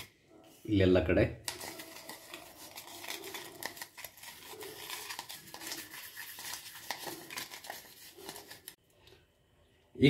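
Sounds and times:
toothbrush scrubbing plastic: 0:01.4 - 0:08.8.

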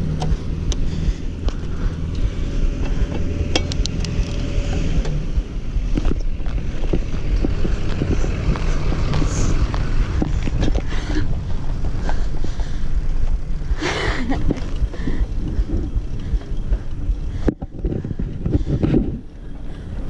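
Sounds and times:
sharp clicks and knocks: 0:00.0 - 0:12.2
mountain bike rumbling and rattling: 0:00.0 - 0:20.0
wind on microphone: 0:00.0 - 0:20.0.

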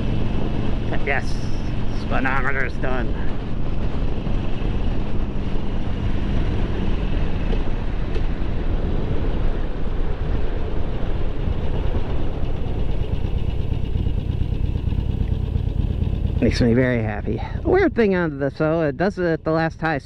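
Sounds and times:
wind noise on microphone: 0:00.0 - 0:16.6
motorcycle engine slowing down: 0:10.8 - 0:18.5.

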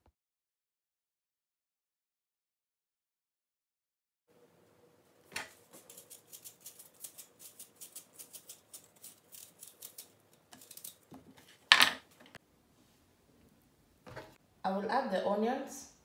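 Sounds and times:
knife scraping apple peel: 0:05.6 - 0:11.6.

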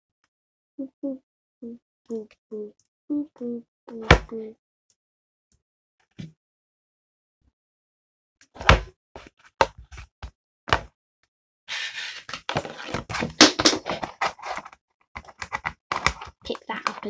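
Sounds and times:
clicks taps and rustling: 0:13.7 - 0:17.0.

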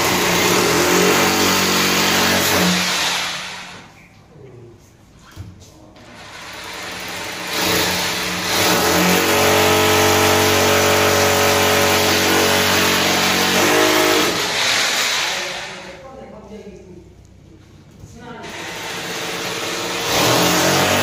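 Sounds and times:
electric drill boring into wall: 0:00.0 - 0:03.9, 0:06.1 - 0:15.9, 0:18.4 - 0:21.0.

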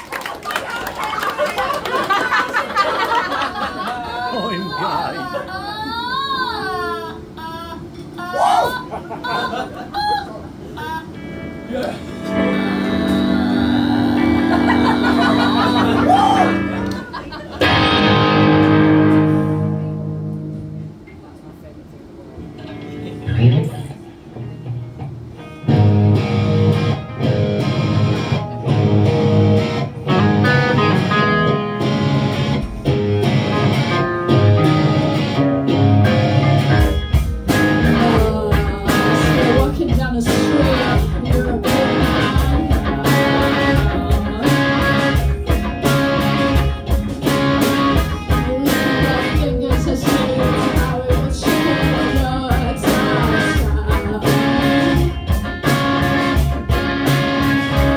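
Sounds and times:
live rock band playing: 0:11.0 - 0:21.1, 0:22.4 - 0:57.9.

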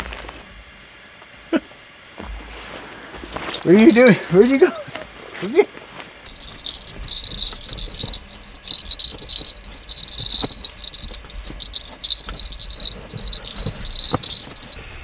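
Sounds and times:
crickets chirping: 0:00.0 - 0:15.0
dog shifting on bedding: 0:06.3 - 0:14.8.

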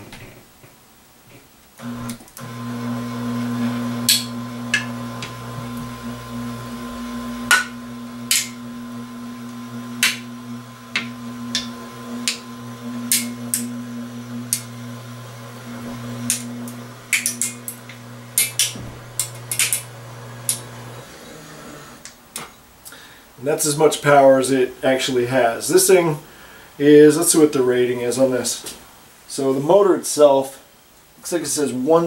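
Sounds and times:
electric motor humming: 0:01.8 - 0:22.1
can crinkling and cracking: 0:17.1 - 0:19.9.

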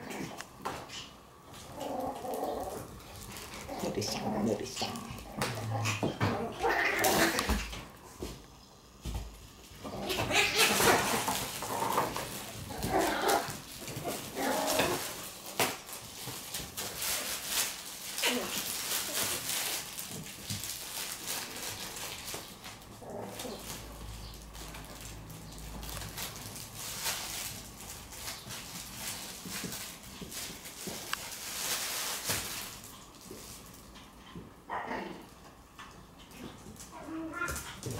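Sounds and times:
puppy vocal sounds: 0:00.0 - 0:08.0, 0:09.7 - 0:15.4
paws skittering on hard floor: 0:00.5 - 0:34.6, 0:35.8 - 0:37.9.

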